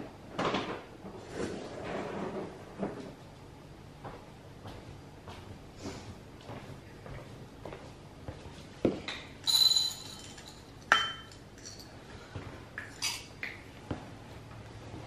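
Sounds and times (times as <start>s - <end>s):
slippered footsteps: 4.0s - 9.1s.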